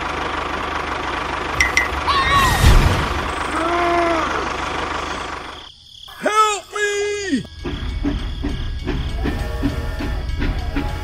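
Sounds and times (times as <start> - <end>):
background music drum beat: 7.6 - 11.0.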